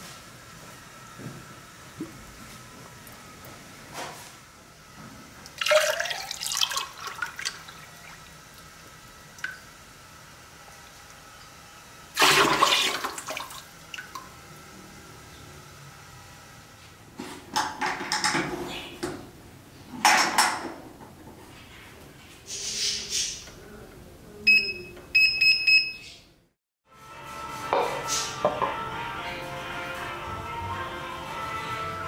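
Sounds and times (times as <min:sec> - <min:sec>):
liquid pouring into a bucket: 0:05.5 - 0:08.3, 0:12.2 - 0:14.2.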